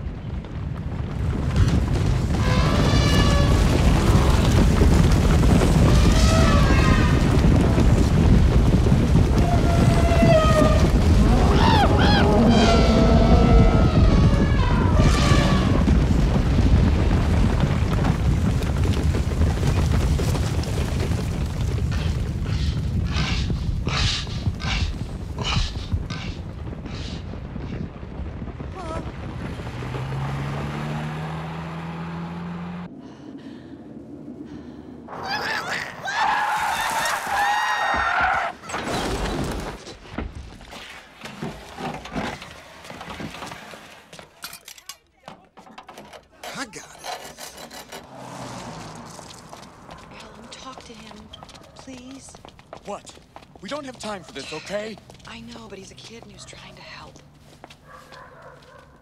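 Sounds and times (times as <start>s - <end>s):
rapid hoof clattering: 0.0s - 30.7s, 45.2s - 59.0s
stampede of hooves rumbling: 0.0s - 33.0s, 33.8s - 59.0s
objects clattering and thudding: 37.8s - 51.9s.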